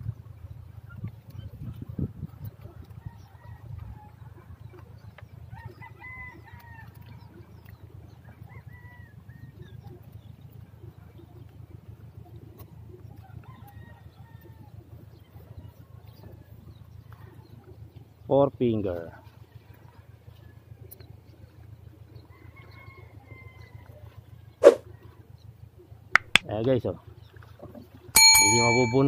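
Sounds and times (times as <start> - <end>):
wind rumble on microphone: 0.0 - 4.7
handling clicks: 26.2 - 26.5.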